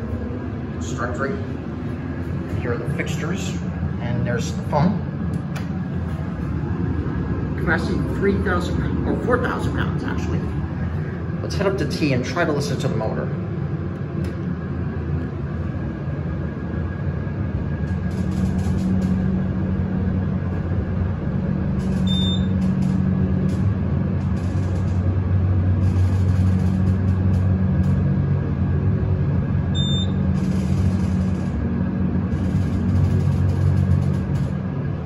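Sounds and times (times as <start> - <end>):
elevator motor humming: 0.0 - 35.0
short high beeps: 22.1 - 22.5, 29.8 - 30.2.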